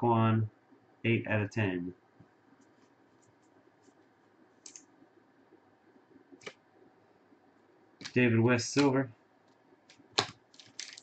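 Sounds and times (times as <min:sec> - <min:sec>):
trading cards flipped by hand: 0:09.9 - 0:11.0.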